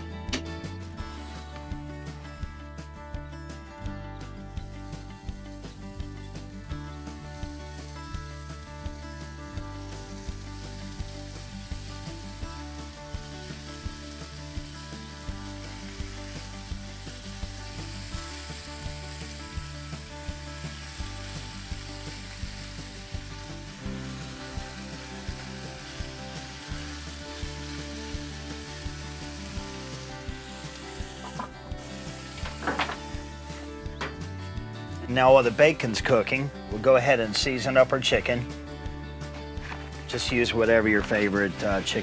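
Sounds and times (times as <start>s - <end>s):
bacon sizzling: 4.6s - 34.3s, 39.6s - 42.0s.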